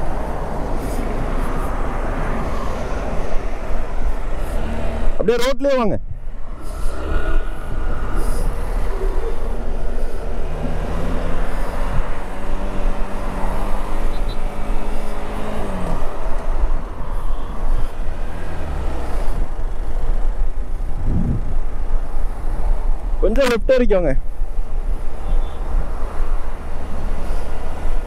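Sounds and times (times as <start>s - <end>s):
wind rumble on microphone: 6.0s - 14.1s, 18.8s - 23.2s.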